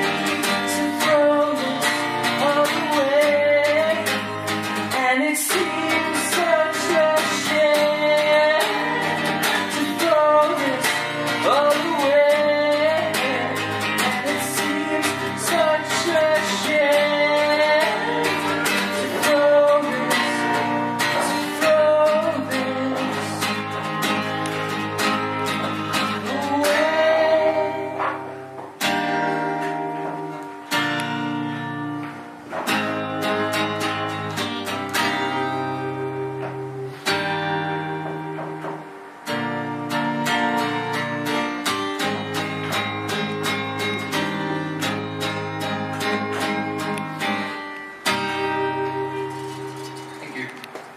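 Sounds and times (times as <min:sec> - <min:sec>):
man singing: 0:00.0 - 0:28.4
acoustic guitar strumming: 0:00.0 - 0:50.9.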